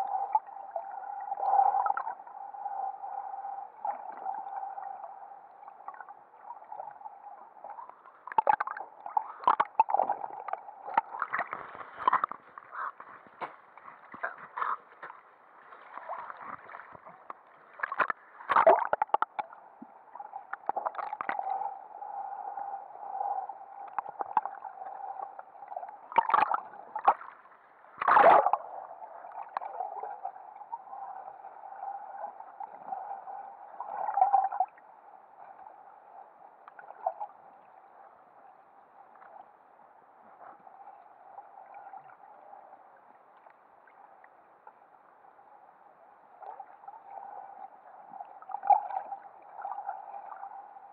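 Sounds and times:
water gurgling underwater: 3.7s - 15.1s, 15.7s - 21.8s, 23.8s - 27.4s, 28.0s - 33.2s, 46.4s - 50.6s.

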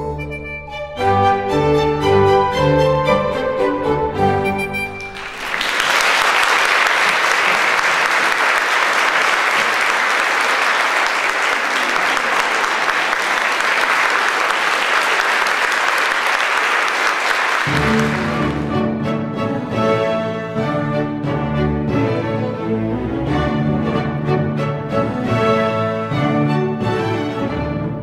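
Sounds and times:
orchestral music: 0.0s - 7.4s, 17.6s - 28.0s
audience applauding: 5.0s - 19.0s.

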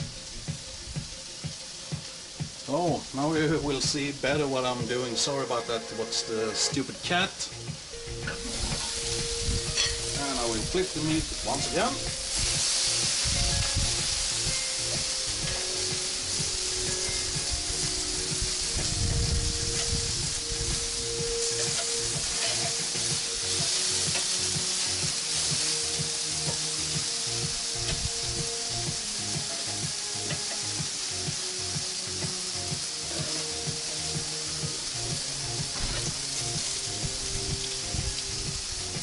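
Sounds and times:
meat sizzling on a grill: 0.0s - 39.0s
metal tongs on grill: 8.2s - 18.9s, 21.0s - 27.1s, 29.3s - 31.1s, 35.7s - 36.8s.

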